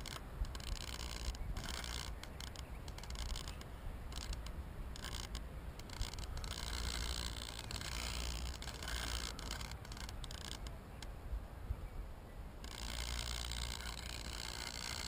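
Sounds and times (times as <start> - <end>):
drone handling scrapes and clicks: 0.0 - 11.1, 12.6 - 15.0
wind rumbling on microphone: 0.0 - 15.0.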